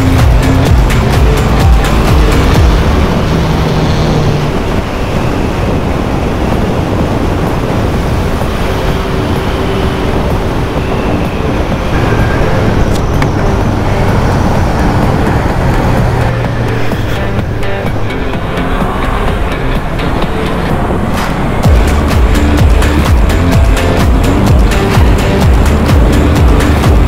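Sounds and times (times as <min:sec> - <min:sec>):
motorcycle engine running: 0:00.0 - 0:04.8, 0:21.6 - 0:27.0
wind rush: 0:00.0 - 0:27.0.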